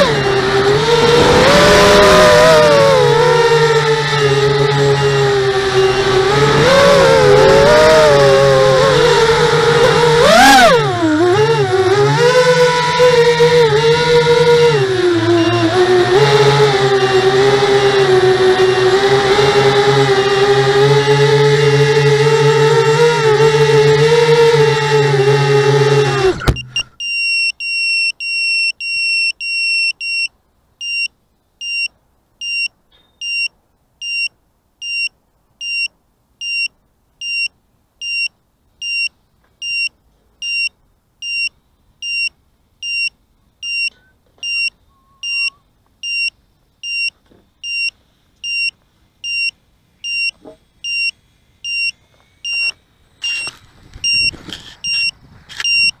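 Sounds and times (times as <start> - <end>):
rustling and knocking of drone: 0.0 - 27.0, 51.7 - 55.9
drone beeper beeping: 36.4 - 56.0.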